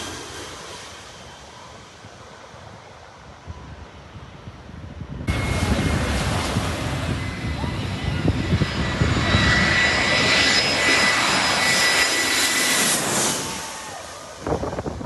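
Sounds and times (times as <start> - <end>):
jet airliner passing overhead: 0.0 - 15.0.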